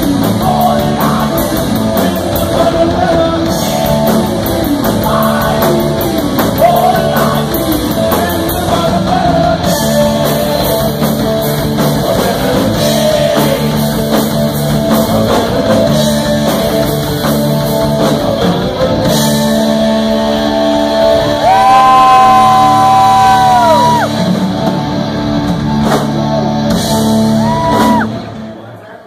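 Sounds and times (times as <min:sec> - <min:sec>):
distorted electric guitars: 0:00.0 - 0:28.7
bass guitar: 0:00.0 - 0:28.8
drums: 0:00.0 - 0:29.0
shouted vocals: 0:21.3 - 0:24.1.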